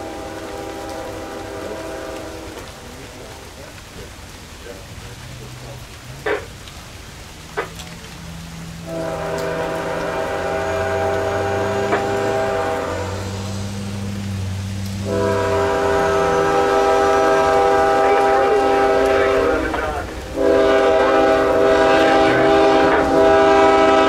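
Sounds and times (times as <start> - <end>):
locomotive air horn: 0.0 - 2.7, 8.8 - 14.3, 15.0 - 24.0
diesel engine hum: 2.7 - 24.0.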